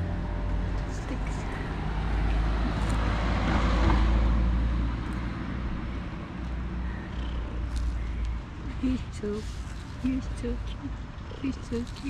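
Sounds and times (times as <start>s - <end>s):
vehicle passing with tyre hiss: 1.1s - 7.9s.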